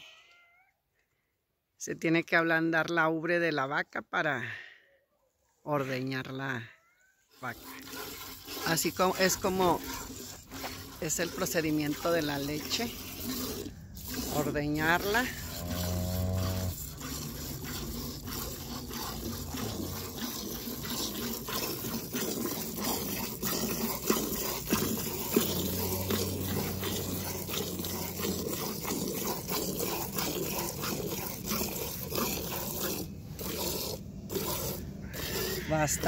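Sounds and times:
milk squirting into metal pail: 7.3 - 36.0.

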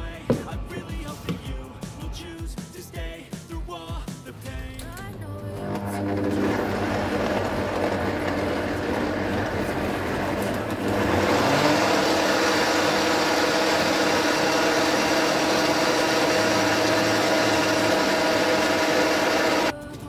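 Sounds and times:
blender motor whirring: 5.3 - 19.7.

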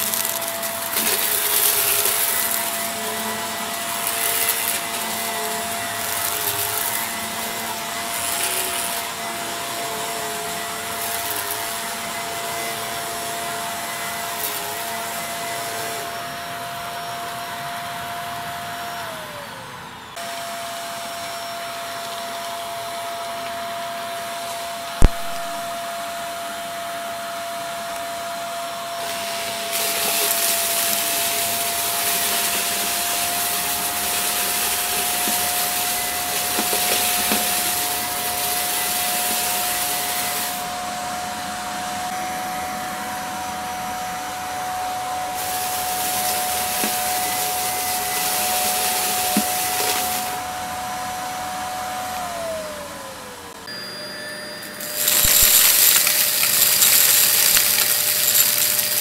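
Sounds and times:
vacuum sucking crunchy debris: 0.0 - 15.6, 29.0 - 40.6, 54.8 - 59.0
vacuum cleaner motor whine: 0.0 - 59.0.

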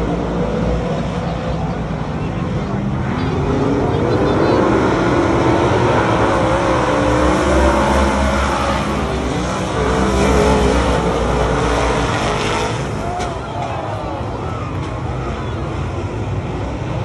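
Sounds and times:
race car engines: 0.0 - 17.0.

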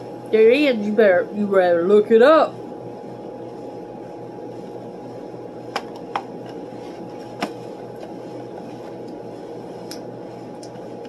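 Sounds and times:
room hum: 0.0 - 11.0
chewing and mouth clicks: 10.6 - 10.8.

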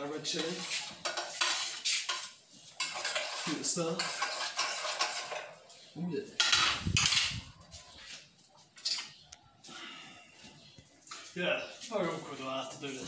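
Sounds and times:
kitchenware clattering: 0.0 - 5.6, 6.3 - 7.6
utensil scraping in pot: 0.0 - 7.3.

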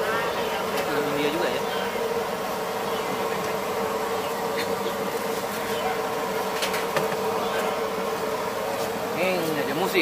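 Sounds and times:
buzzing hum: 0.0 - 10.0.

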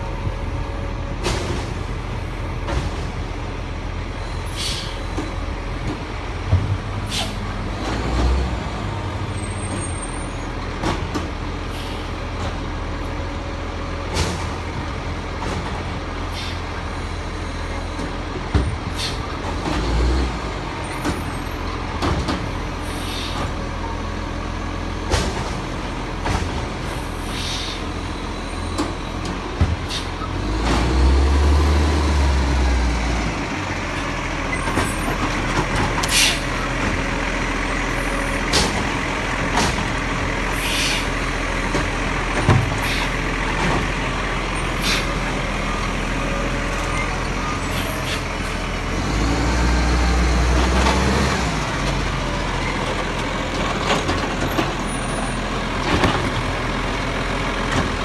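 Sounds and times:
short air hisses: 4.5 - 5.0, 7.1 - 7.4, 22.9 - 23.5, 27.2 - 27.8, 36.1 - 36.5, 40.6 - 41.1
diesel engine idling: 25.7 - 58.0.

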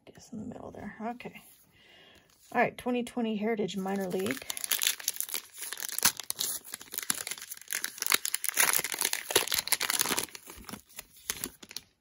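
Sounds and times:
wrapper tearing and crinkling: 3.8 - 12.0.

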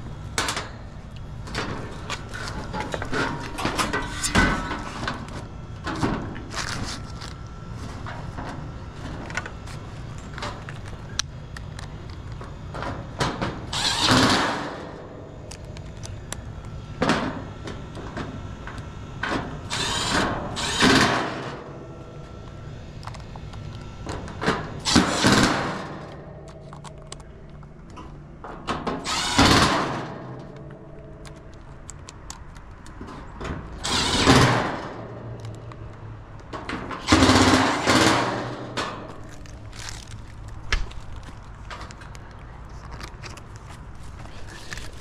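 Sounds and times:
power driver driving screws: 13.7 - 14.9, 19.7 - 21.6, 24.8 - 26.2, 29.0 - 30.4, 33.8 - 34.9, 37.0 - 40.1.

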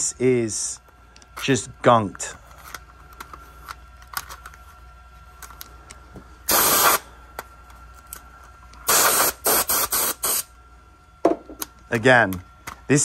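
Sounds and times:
compressed air blasts: 6.5 - 7.1, 8.9 - 10.5.

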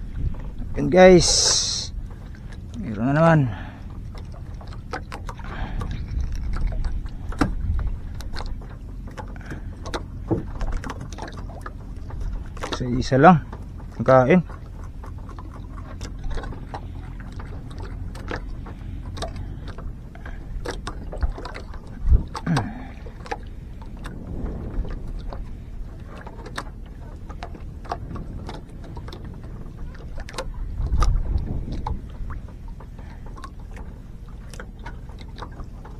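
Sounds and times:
boat low rumble: 0.0 - 35.9
sharp clicks and knocks: 4.2 - 12.9.

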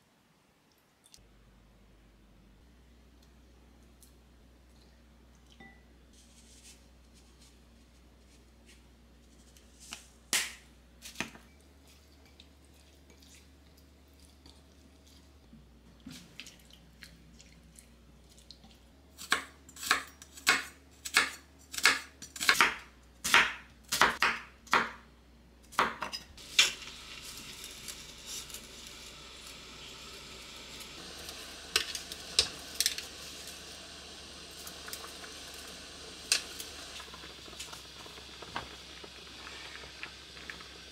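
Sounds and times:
steady hiss: 26.4 - 40.9.

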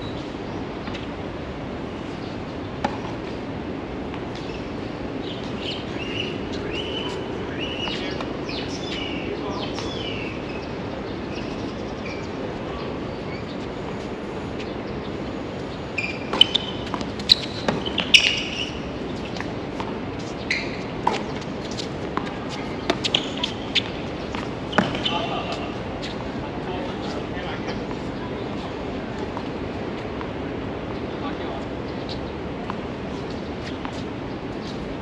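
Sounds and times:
steady background noise: 0.0 - 35.0
birds chirping: 1.9 - 30.1, 30.8 - 35.0
tennis ball hits and bounces: 2.8 - 3.4, 16.1 - 20.3, 21.0 - 26.2.

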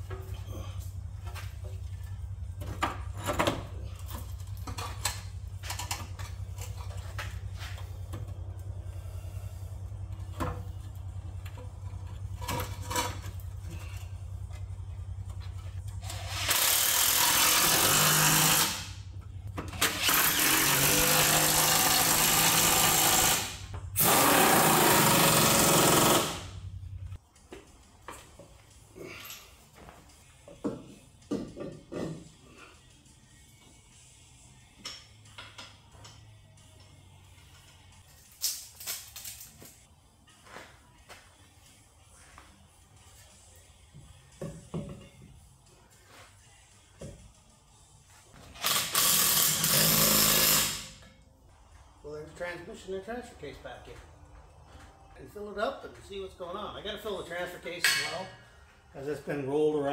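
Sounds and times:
pneumatic wrench running: 16.0 - 19.0, 19.8 - 26.6, 48.6 - 51.0.

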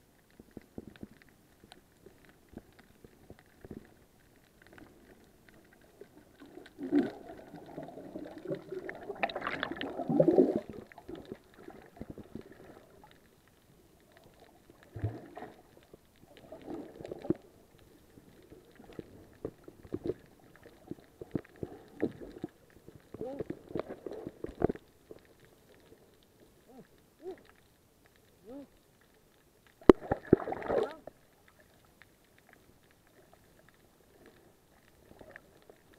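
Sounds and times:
muffled underwater gurgling: 5.8 - 13.1.

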